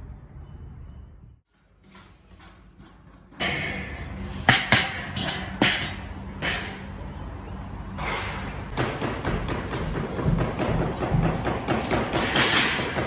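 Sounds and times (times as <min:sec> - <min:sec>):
sharp metallic knocks: 0:01.8 - 0:06.9, 0:07.9 - 0:13.0.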